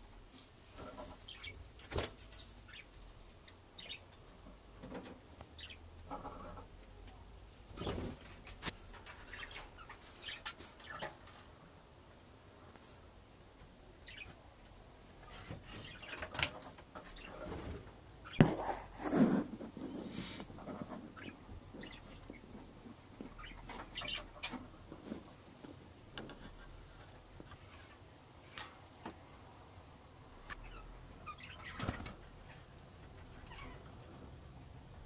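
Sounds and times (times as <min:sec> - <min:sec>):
budgerigars fluttering wings: 0:07.7 - 0:08.6.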